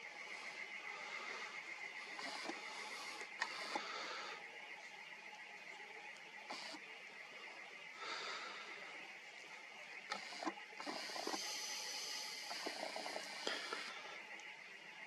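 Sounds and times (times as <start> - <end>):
camera lens zoom motor whirring: 2.0 - 3.8, 6.5 - 6.8, 10.1 - 13.9.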